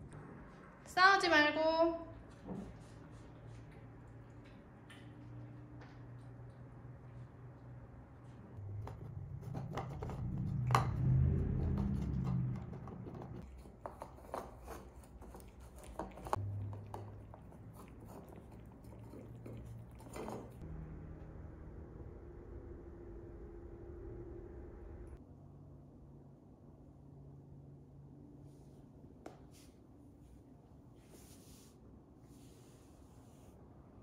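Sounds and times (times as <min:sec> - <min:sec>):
faint low hum: 0:00.0 - 0:29.2
cat chewing and crunching: 0:11.4 - 0:20.6.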